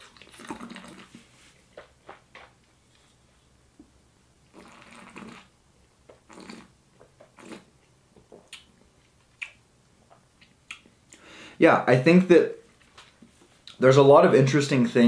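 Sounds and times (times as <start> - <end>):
person slurping wine: 0.0 - 1.4, 4.5 - 5.5, 6.2 - 7.7.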